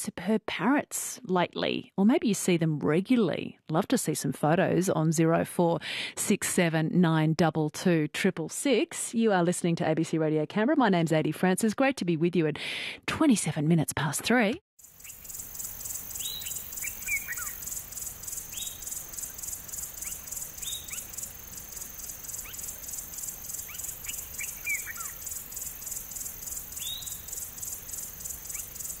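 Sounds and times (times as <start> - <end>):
insects trilling: 14.8 - 29.0
short falling bird calls: 16.2 - 17.7, 23.5 - 25.4.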